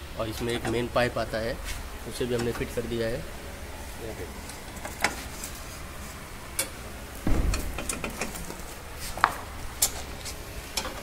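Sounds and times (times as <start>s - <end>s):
dull thump: 7.2s - 8.2s.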